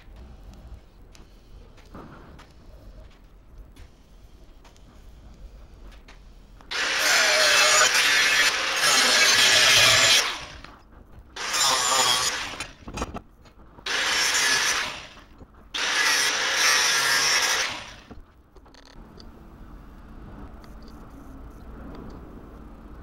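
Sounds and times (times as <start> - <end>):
angle grinder cutting steel: 6.7 - 10.7, 11.4 - 12.8, 13.9 - 18.1.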